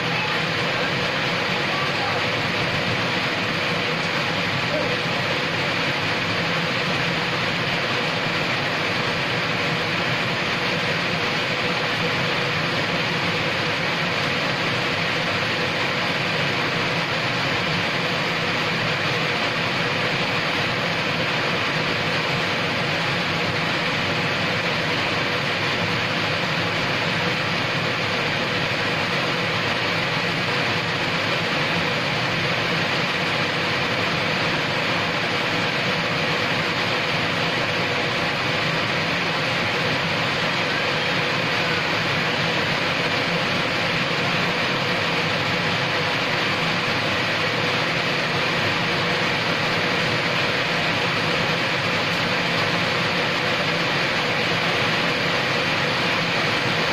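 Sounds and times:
rain on brick paving: 0:00.0 - 0:56.9.

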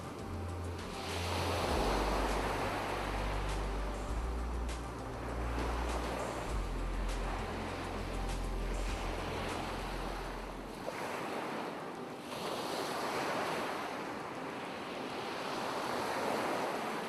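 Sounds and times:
low hum: 0:00.0 - 0:10.7
ocean surf washing ashore: 0:00.0 - 0:17.0.

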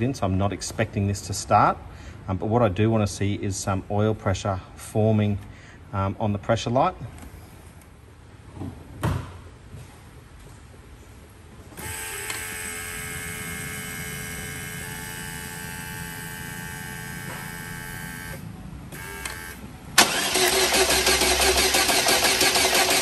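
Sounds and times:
engine cranking on starter motor: 0:11.8 - 0:23.0.

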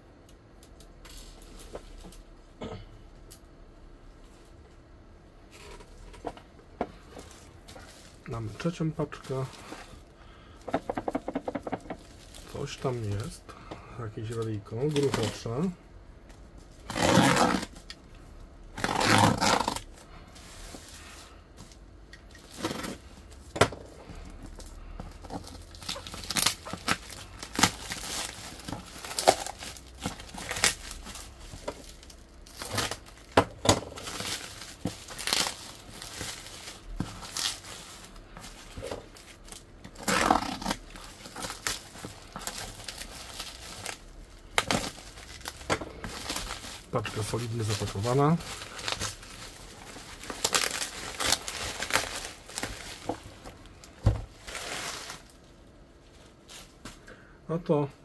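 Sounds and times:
plastic and bubble wrap crinkling: 0:00.6 - 0:02.4, 0:05.4 - 0:15.8, 0:16.4 - 0:57.0
tape tearing rips: 0:16.8 - 0:18.0, 0:18.7 - 0:19.9, 0:25.4 - 0:31.2, 0:34.0 - 0:36.4, 0:39.5 - 0:46.6, 0:50.2 - 0:52.8.

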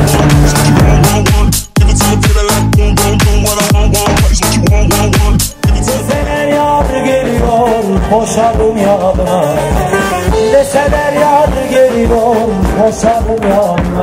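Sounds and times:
band music with drum beat: 0:00.0 - 0:14.0
man singing: 0:00.0 - 0:14.0.

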